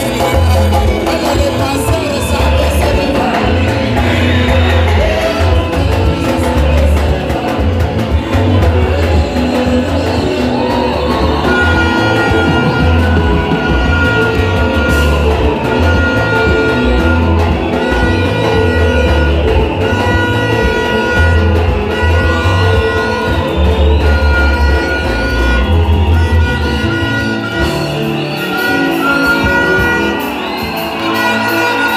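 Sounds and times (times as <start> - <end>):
upbeat band music: 0.0 - 31.9.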